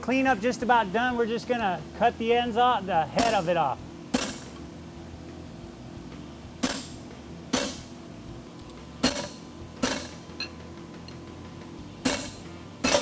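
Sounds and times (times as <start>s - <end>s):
hammer striking chisel on anvil: 3.2s - 3.5s, 6.6s - 7.9s, 12.0s - 13.0s.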